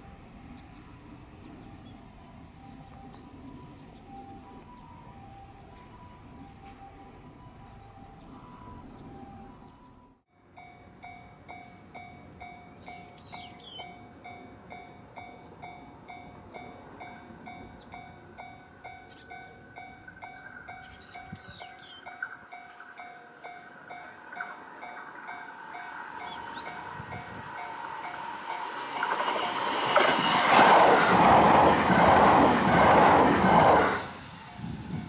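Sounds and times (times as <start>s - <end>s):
electric train hum: 0.0s - 35.0s
level crossing warning bell ringing: 0.0s - 35.0s
bird chirping: 7.6s - 10.0s, 12.5s - 15.8s, 17.6s - 18.2s, 18.9s - 25.3s, 26.2s - 26.9s.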